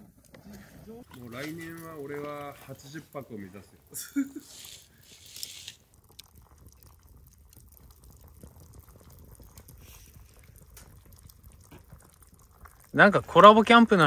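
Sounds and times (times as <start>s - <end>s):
water bubbling in a pot: 0.0s - 14.0s
short hiss: 4.3s - 5.8s.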